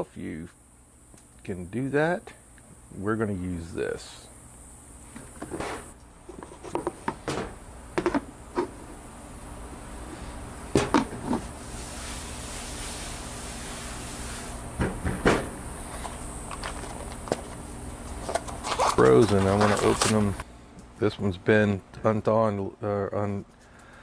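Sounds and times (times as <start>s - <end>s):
hand brushing flour on steel: 11.4s - 14.6s.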